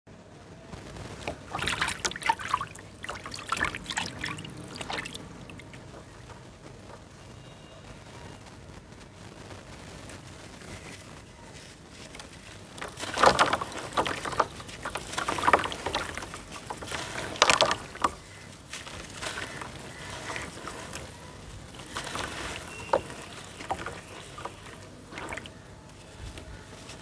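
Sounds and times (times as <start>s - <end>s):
water splashing and sloshing: 0.9s - 7.1s, 12.1s - 27.0s
water swirling: 1.2s - 6.3s, 12.8s - 25.7s.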